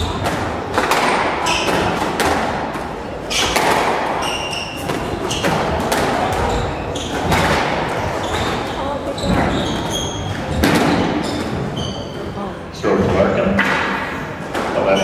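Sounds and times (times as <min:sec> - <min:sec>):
squash ball thuds: 0:00.0 - 0:11.8
shoes squeaking on wooden floor: 0:01.4 - 0:02.1, 0:03.2 - 0:12.4.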